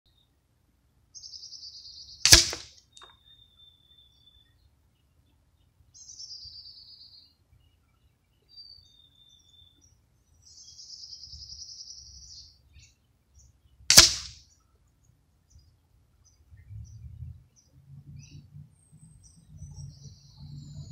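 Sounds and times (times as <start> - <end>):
birds singing trills: 1.2 - 20.9
air gun shots: 2.2 - 2.8, 13.9 - 14.4.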